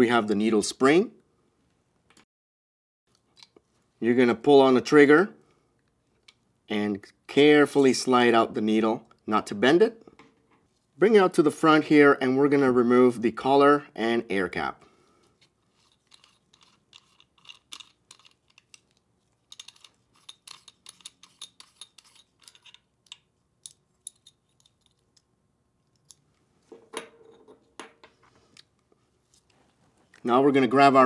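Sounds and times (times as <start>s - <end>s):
parts knocking on wooden bench: 26.7s - 28.2s.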